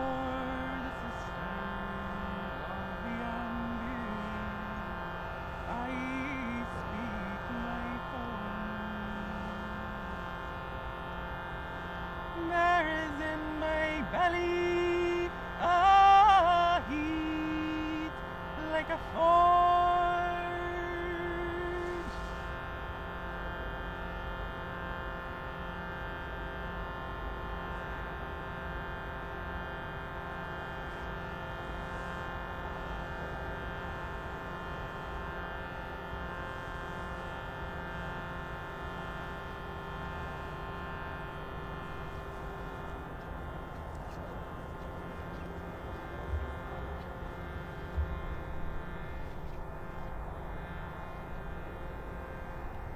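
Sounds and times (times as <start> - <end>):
steady musical drone: 0.0 - 52.9
singing: 12.4 - 22.2.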